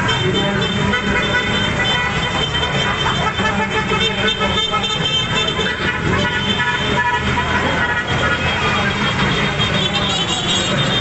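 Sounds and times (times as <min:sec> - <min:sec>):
horns tooting: 0:00.0 - 0:11.0.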